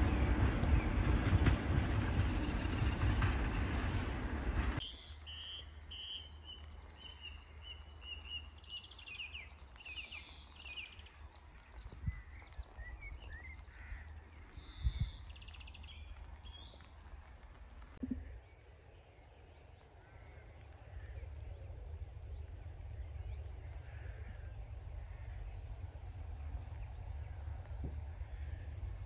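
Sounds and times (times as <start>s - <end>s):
diesel train running past: 0.0s - 8.0s, 19.7s - 29.0s
birds singing: 0.0s - 16.9s
low wind rumble: 0.0s - 29.0s.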